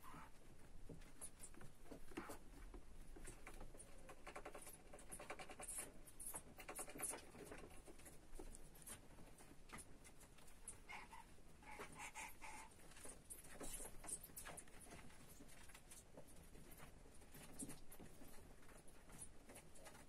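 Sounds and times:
hamster claws scratching plastic: 0:01.5 - 0:09.1.

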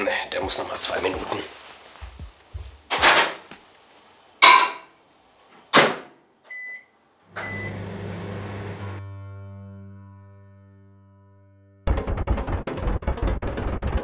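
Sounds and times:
microwave beep: 0:06.5 - 0:09.0
microwave running hum: 0:06.5 - 0:09.0.

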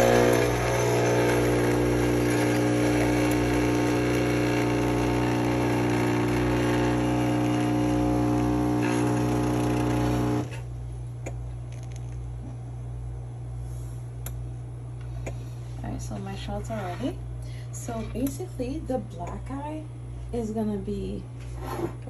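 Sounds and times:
espresso machine pump buzzing: 0:00.0 - 0:10.7.

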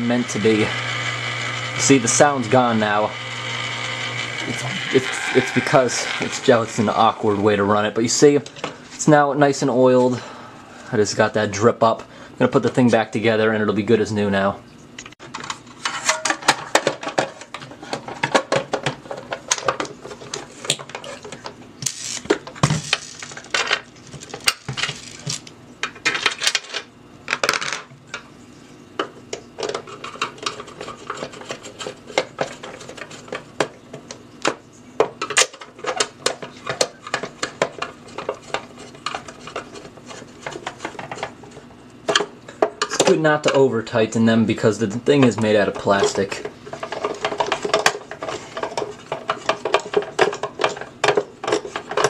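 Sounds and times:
plastic parts clicking and rattling: 0:15.3 - 0:27.9, 0:45.8 - 0:52.0.

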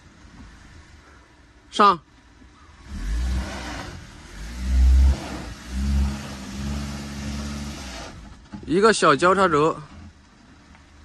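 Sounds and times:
car engine revving: 0:02.7 - 0:08.6
tyres crunching on loose dirt: 0:05.0 - 0:11.0.

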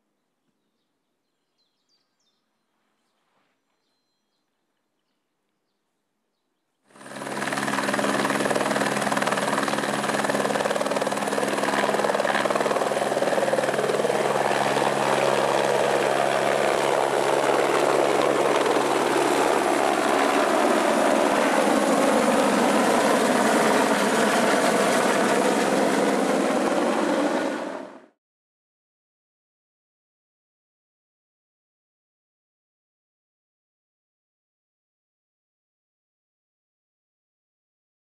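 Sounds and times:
helicopter turbine and rotor: 0:06.9 - 0:28.2.

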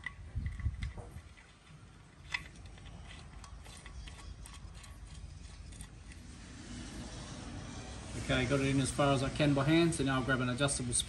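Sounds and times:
clicks of fitting being screwed: 0:00.0 - 0:06.2.

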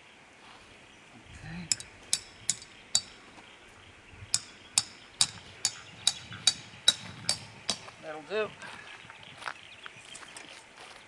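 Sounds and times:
hammer striking tent peg: 0:01.7 - 0:03.2, 0:04.4 - 0:07.9.

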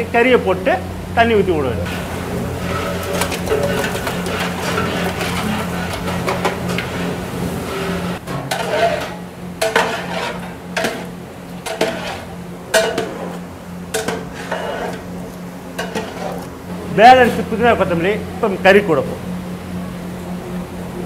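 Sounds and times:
steady low hum: 0:00.0 - 0:21.0
metal ladle scraping a pot: 0:01.9 - 0:16.5.

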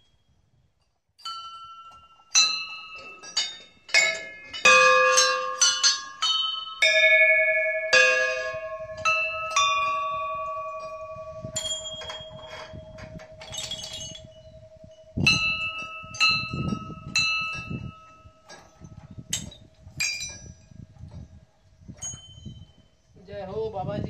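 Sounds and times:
brass bells clanging: 0:01.2 - 0:14.4.

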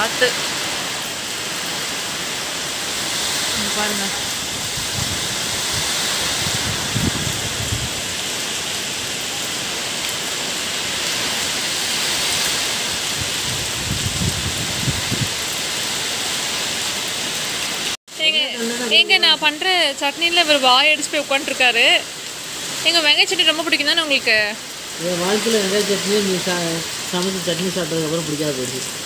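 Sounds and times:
heavy rain falling: 0:00.0 - 0:29.0
wind buffeting microphone: 0:04.3 - 0:08.1, 0:12.9 - 0:15.5.

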